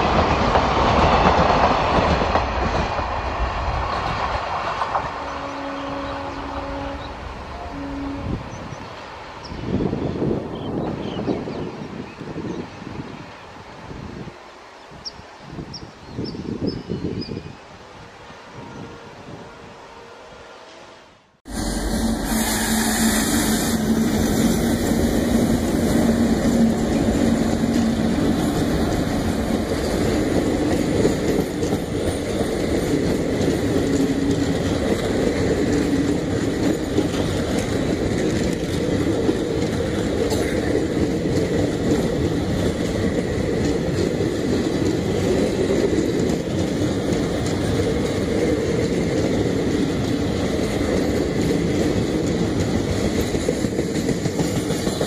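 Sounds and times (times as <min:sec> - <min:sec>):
train wheels clattering on rails: 0:00.0 - 0:06.3, 0:21.7 - 0:55.0
diesel locomotive engine drone: 0:17.6 - 0:55.0.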